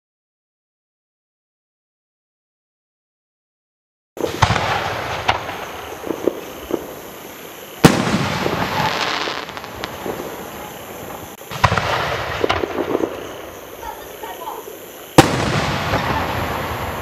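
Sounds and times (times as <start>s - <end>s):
loud firework bang: 4.2s - 6.9s, 7.8s - 10.2s, 11.5s - 13.3s, 15.2s - 17.0s
firework pops: 4.2s - 7.0s, 7.8s - 13.3s, 15.2s - 17.0s
firework reports: 4.2s - 17.0s.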